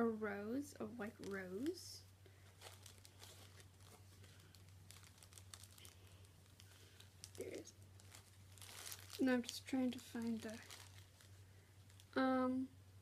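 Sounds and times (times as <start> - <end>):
cloth pouch rustling and clicking: 2.4 - 9.6.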